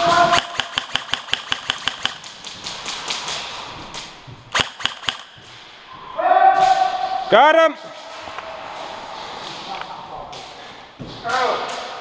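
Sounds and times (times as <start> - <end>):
man shouting: 0.0 - 0.5, 6.2 - 7.8
airsoft guns firing: 0.0 - 5.8.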